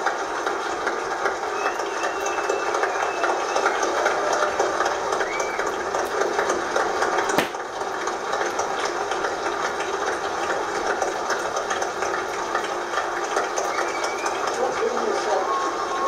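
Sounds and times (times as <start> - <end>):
crowd applauding through tv speaker: 1.2 - 6.4, 13.4 - 16.0
sharp click: 7.4 - 7.6.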